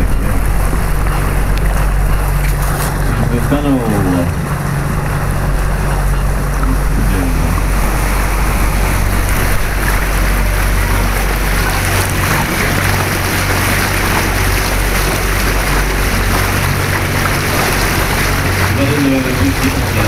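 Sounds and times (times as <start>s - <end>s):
boat motor humming: 0.0s - 20.0s
water rushing: 0.0s - 20.0s.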